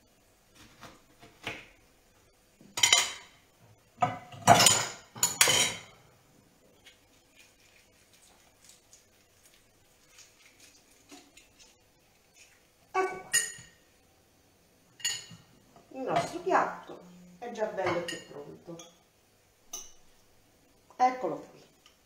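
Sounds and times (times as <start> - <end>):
cutlery clinking against plates: 2.8 - 3.4, 4.0 - 5.9, 13.2 - 13.8, 15.0 - 15.5.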